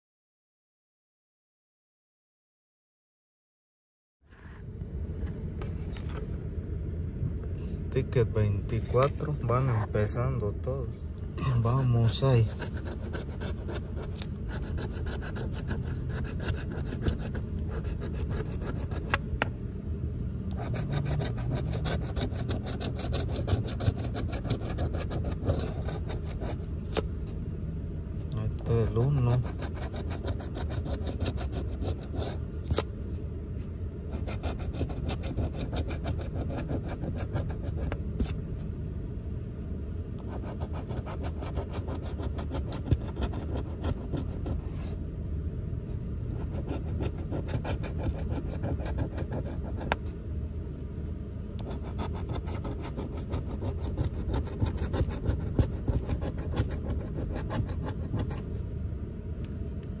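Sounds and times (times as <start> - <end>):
low rumble: 4.4 - 22.8, 24.4 - 28.7
coin scratching lottery ticket: 12.1 - 19.2, 20.5 - 26.6, 28.7 - 32.8, 34.1 - 38.4, 40.3 - 44.6, 46.4 - 50.0, 51.6 - 58.4.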